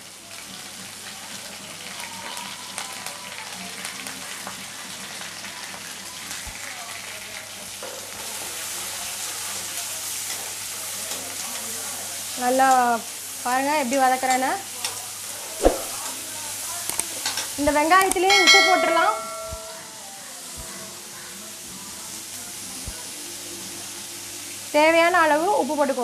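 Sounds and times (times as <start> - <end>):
onions sizzling in oil: 0.0 - 26.0
metal spoon clicking against pan: 18.0 - 18.7.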